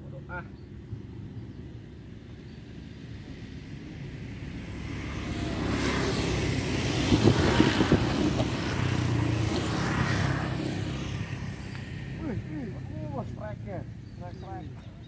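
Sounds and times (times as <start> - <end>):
vehicle engine passing: 4.1 - 14.7.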